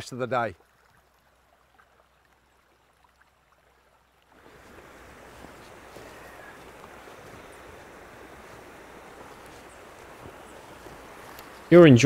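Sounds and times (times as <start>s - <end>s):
stream rushing over stones: 0.0s - 12.0s.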